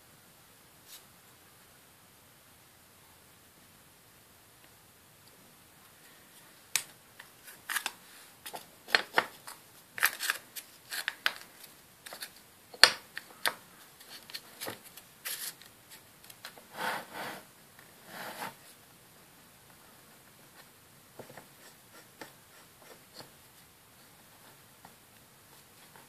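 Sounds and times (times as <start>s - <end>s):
short scrapes: 16.7s - 18.6s.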